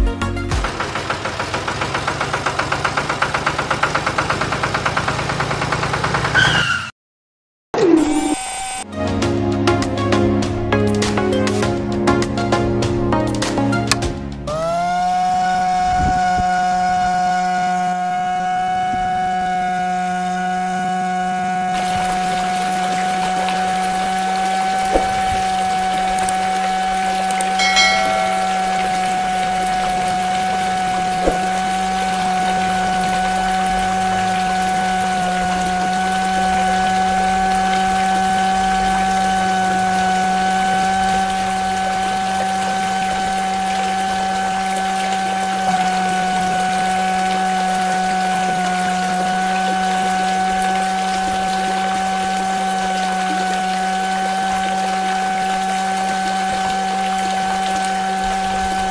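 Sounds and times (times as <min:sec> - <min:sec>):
small electric motor whining: 0:07.8 - 0:08.8
small electric water pump whining: 0:07.8 - 0:08.9, 0:13.9 - 0:58.9
water flowing: 0:21.5 - 0:58.9.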